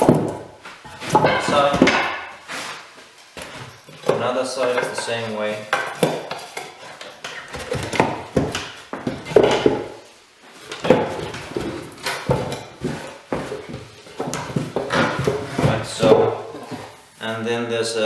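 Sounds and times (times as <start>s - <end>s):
wooden boards knocking together: 0.0s - 2.4s, 5.7s - 10.0s, 10.7s - 16.9s.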